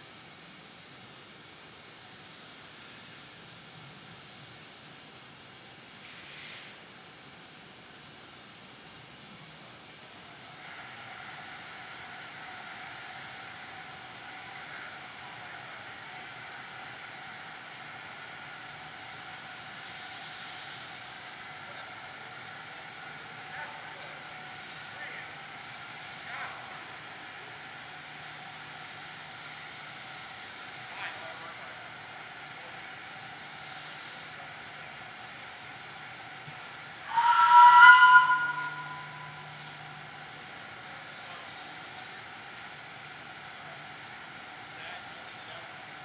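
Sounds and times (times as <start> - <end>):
puff of steam: 0.0 - 46.0
steam locomotive hissing: 0.0 - 46.0
thin steady whine: 37.0 - 41.5.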